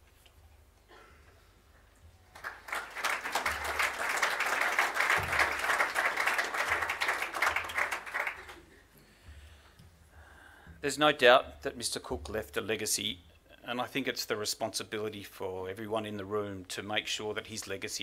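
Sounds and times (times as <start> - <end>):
audience applauding: 2.3 - 8.7.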